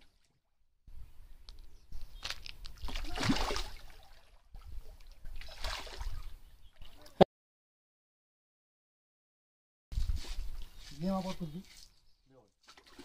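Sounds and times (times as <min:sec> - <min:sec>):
fish splashing water: 0:02.6 - 0:04.4, 0:05.0 - 0:06.3, 0:12.7 - 0:13.0.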